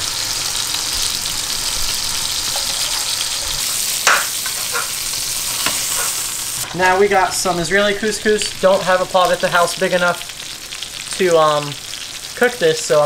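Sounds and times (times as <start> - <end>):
fish frying in oil: 0.0 - 13.0
metal spatula knocking pan: 4.0 - 5.0.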